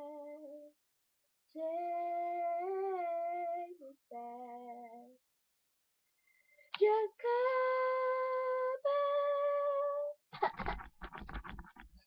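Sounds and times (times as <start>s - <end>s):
woman singing unaccompanied: 0.0s - 0.7s, 1.6s - 5.2s, 6.7s - 10.2s.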